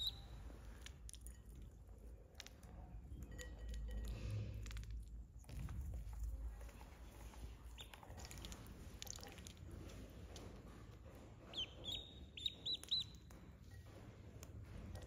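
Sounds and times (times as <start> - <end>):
duckling peeping: 0.0 - 0.4, 7.7 - 8.4, 11.4 - 13.3.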